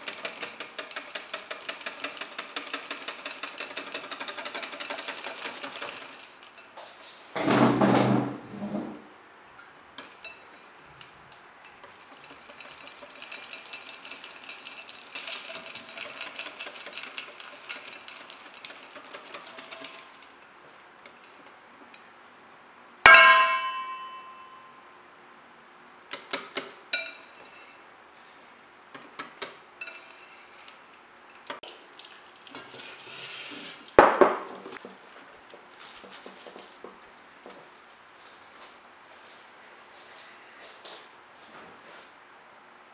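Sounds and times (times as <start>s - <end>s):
ringing metallic strike: 23.1s - 24.9s.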